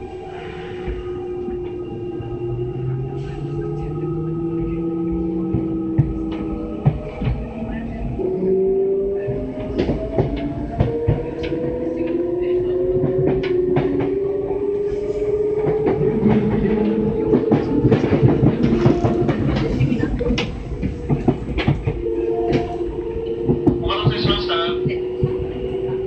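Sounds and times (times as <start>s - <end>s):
train running rumble: 0.0s - 26.0s.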